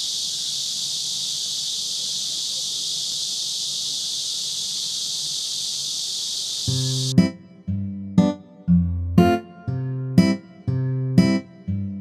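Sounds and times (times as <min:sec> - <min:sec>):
shrill insect chorus: 0:00.0 - 0:07.2.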